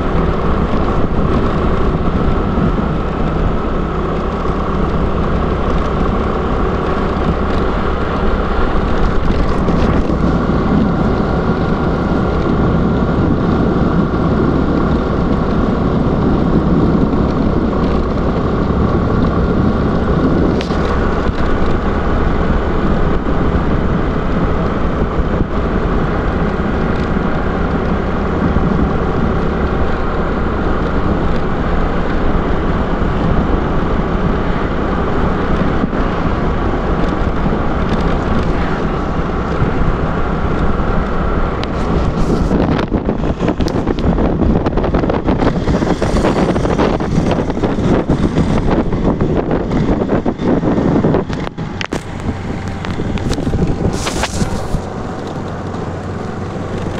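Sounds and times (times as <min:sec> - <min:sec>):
scooter engine running: 0:00.0 - 0:56.9
wind buffeting microphone: 0:00.0 - 0:56.9.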